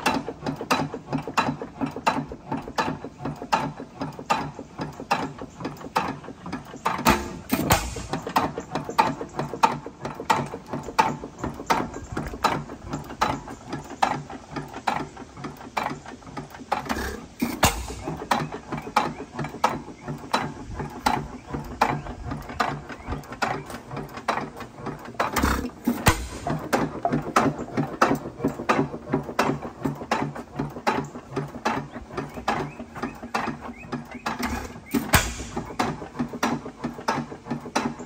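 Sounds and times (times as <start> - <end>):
engine firing thumps: 0.0 - 38.0
engine valve gear clatter: 0.0 - 38.0.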